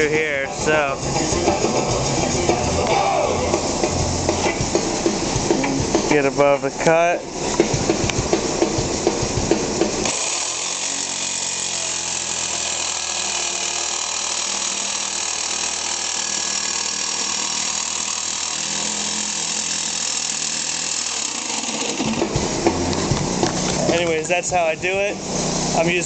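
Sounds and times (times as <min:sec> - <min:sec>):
jigsaw cutting metal: 0:10.0 - 0:22.9.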